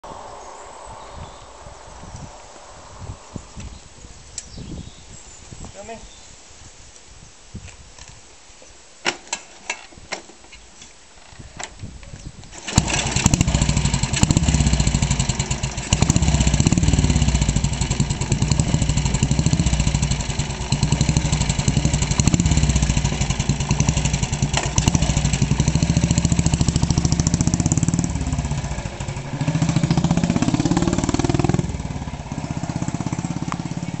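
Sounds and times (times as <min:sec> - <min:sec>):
motorcycle engine revving: 0:12.6 - 0:34.0.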